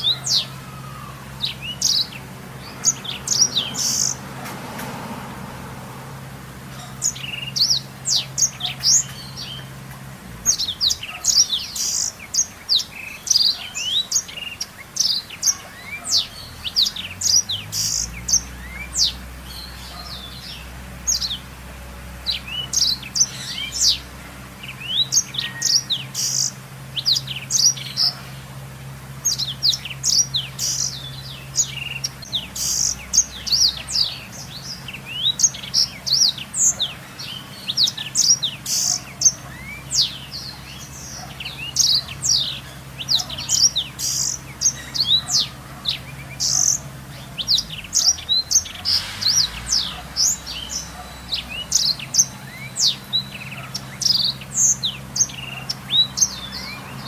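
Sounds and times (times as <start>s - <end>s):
canary singing: 0.0s - 57.0s.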